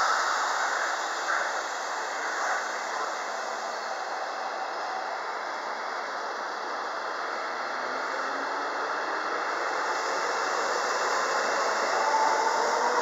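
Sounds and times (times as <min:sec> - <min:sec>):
electric train rushing: 0:00.0 - 0:13.0
thin rising whine: 0:00.0 - 0:13.0.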